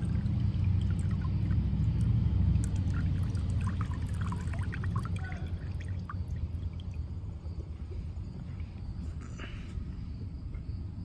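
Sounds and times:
liquid trickling into a bucket: 0.0s - 8.4s
low steady rumble: 0.0s - 11.0s.

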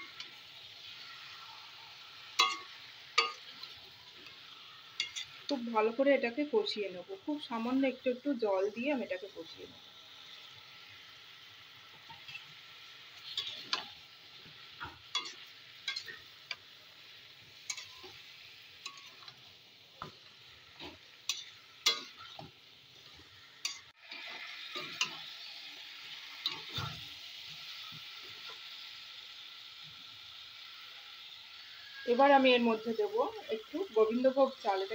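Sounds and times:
food sizzling: 0.0s - 34.9s
spatula scraping a wok: 13.2s - 16.4s.

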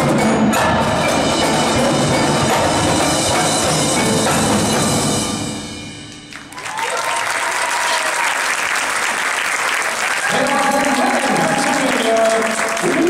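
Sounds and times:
drumline and mallet percussion playing: 0.0s - 7.1s
audience applause: 6.3s - 13.0s.

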